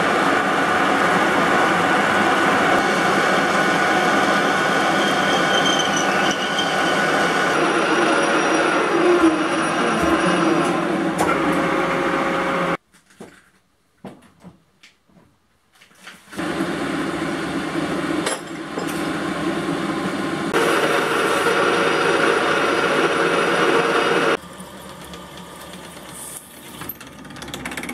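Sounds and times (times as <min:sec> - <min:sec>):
metal lathe drilling steel: 0:00.8 - 0:12.7, 0:20.6 - 0:24.4.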